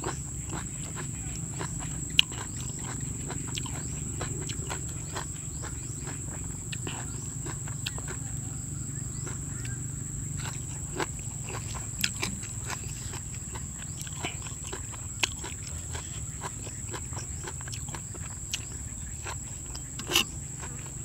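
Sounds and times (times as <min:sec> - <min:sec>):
chewing crunchy food: 0:00.0 - 0:21.0
insects droning: 0:00.0 - 0:21.0.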